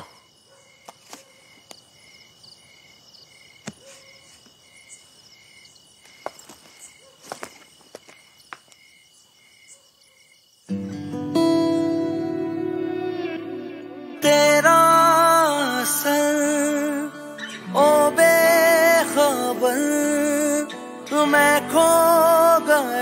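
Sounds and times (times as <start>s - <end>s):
cricket chirping: 0.0s - 23.0s
music: 10.7s - 23.0s.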